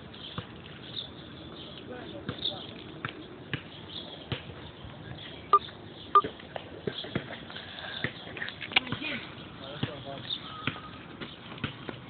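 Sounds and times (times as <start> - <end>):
basketball bouncing on pavement: 2.2 - 4.6, 8.8 - 12.0.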